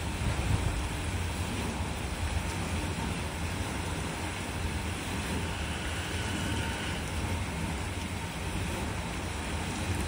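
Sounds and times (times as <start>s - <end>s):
electric train rumbling through washer: 0.0s - 10.0s.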